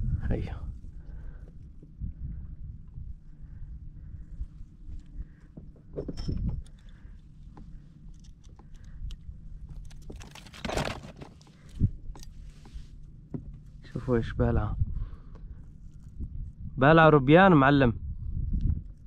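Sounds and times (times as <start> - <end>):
low rumble of wind or water: 0.0 - 19.0
clicks and knocks of handling: 5.4 - 12.3.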